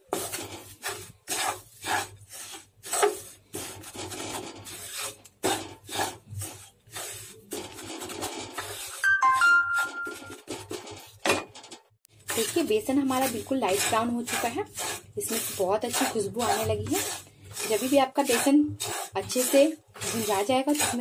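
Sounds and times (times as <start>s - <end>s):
wooden spatula scraping pan: 0.0s - 11.3s, 12.1s - 21.0s
brief ringing note: 9.0s - 10.4s.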